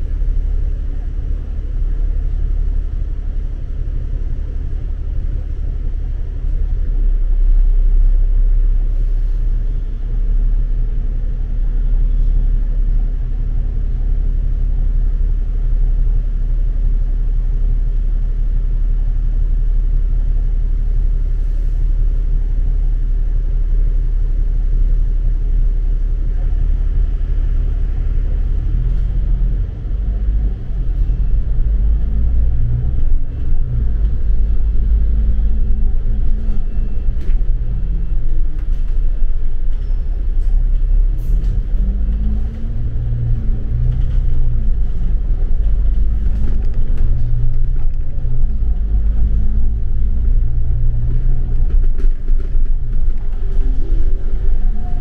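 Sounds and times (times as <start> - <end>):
low traffic rumble: 0.0 - 55.0
passing vehicle engines: 26.5 - 55.0.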